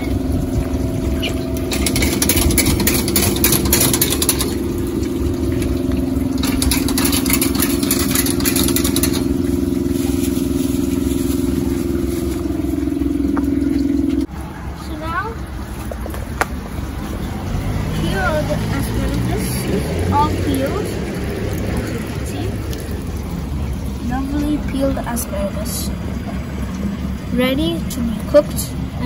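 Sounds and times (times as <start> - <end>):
machine motor hum: 0.0 - 14.3
water spraying: 0.0 - 29.0.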